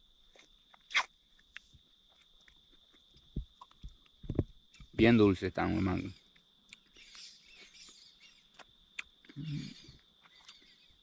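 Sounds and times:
bird chirps: 5.9 - 11.0.

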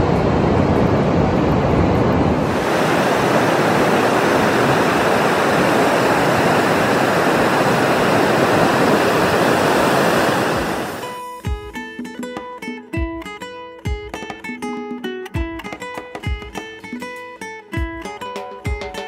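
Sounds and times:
low rumble: 0.0 - 5.7
waves breaking on beach: 0.0 - 11.6.

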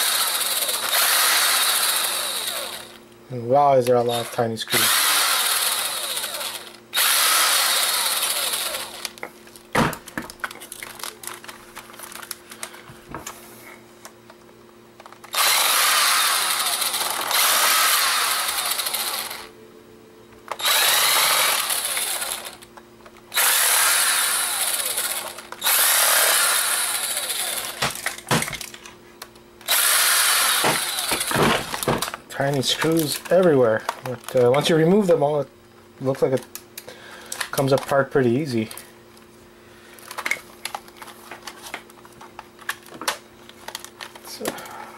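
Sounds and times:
power screwdriver running: 0.0 - 3.0, 4.1 - 9.2, 15.3 - 19.5, 20.5 - 22.6, 23.3 - 28.1, 29.6 - 32.1.

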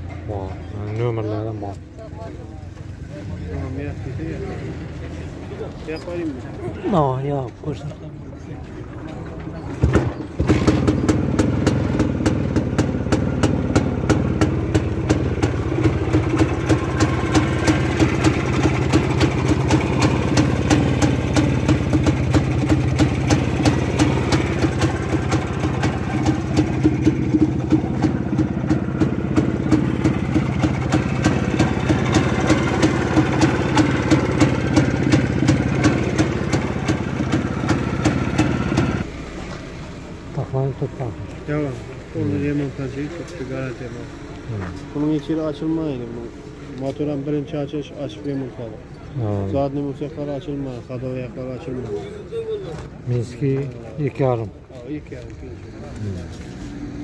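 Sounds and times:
two-stroke engine idling: 10.4 - 39.2.

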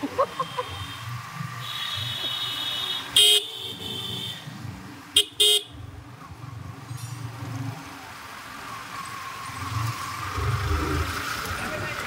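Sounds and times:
motorcycle horn beeping: 0.4 - 4.4, 5.2 - 5.8.

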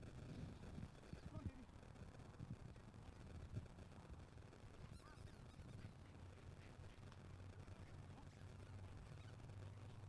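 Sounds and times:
faint low hum: 0.0 - 10.0
faint high-pitched calls: 4.8 - 6.1, 8.6 - 9.5.

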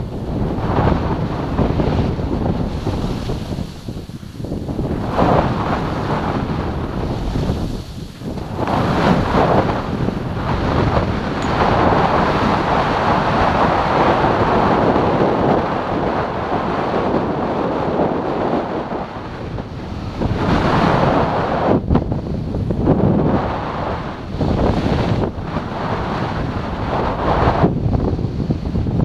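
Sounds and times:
wind on microphone: 0.0 - 29.0
skis sliding on snow: 0.3 - 15.4.

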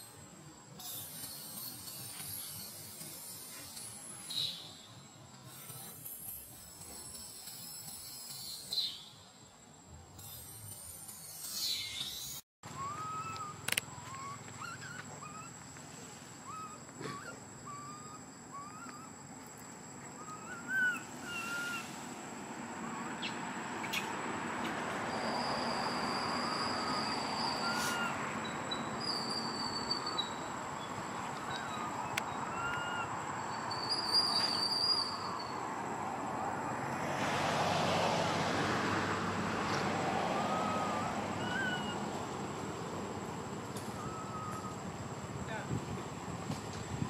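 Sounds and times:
hiss: 5.4 - 8.9, 20.7 - 22.9, 27.5 - 28.2
rising chirp-like animal calls: 11.4 - 23.4, 25.1 - 35.8, 40.0 - 45.6.

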